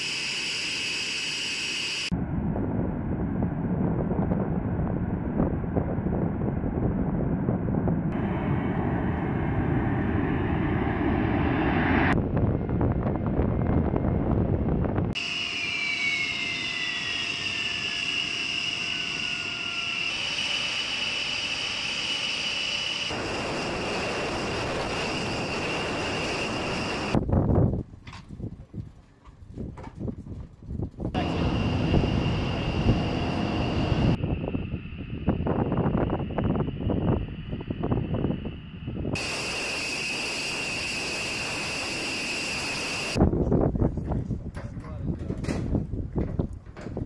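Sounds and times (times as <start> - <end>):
jet takeoff rumble: 0.0 - 28.9, 29.6 - 47.0
high turbine whine: 8.2 - 27.2, 31.2 - 43.3.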